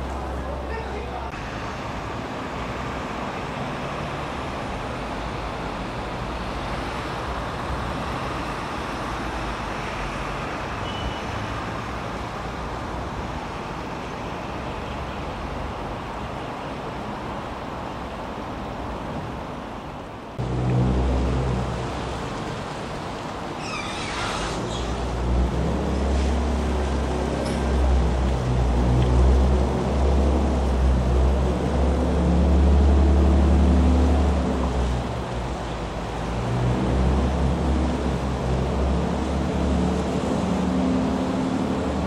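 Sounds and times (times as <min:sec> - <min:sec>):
rushing water: 0:00.0 - 0:42.0
wind: 0:00.0 - 0:42.0
ferry engine drone: 0:20.3 - 0:42.0.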